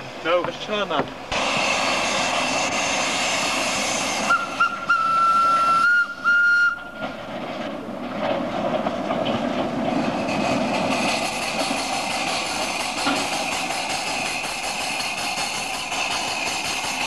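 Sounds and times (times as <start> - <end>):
steady hiss: 0.0 - 5.9
train running noise: 0.0 - 17.0
locomotive whistle blasts: 4.2 - 7.1.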